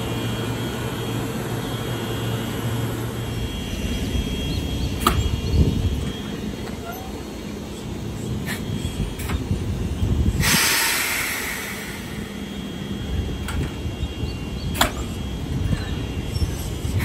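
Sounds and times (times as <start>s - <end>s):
electric train rumbling: 0.0s - 17.0s
air hiss burst: 10.3s - 12.6s.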